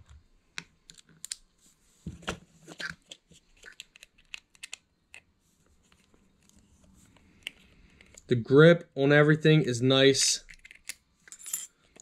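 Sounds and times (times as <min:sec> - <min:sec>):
screwdriver clicking and scraping: 0:10.5 - 0:12.0.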